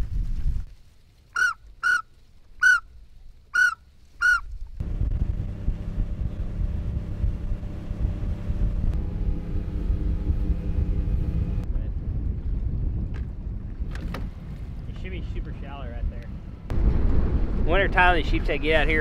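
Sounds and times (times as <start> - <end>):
duck whistle notes: 1.4 - 2.9, 3.5 - 4.5
boat motor running: 4.8 - 11.6.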